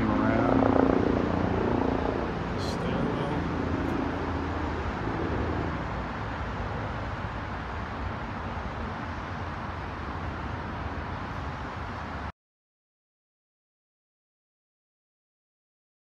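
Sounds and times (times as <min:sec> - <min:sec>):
road traffic noise: 0:00.0 - 0:12.3.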